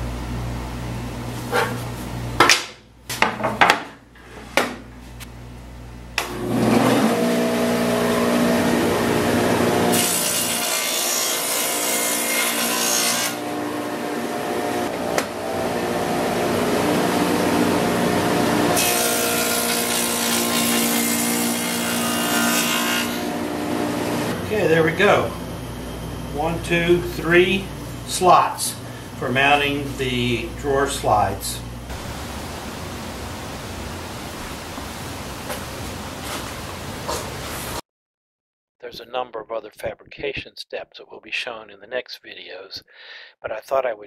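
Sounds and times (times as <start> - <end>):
table saw running: 6.2 - 28.2.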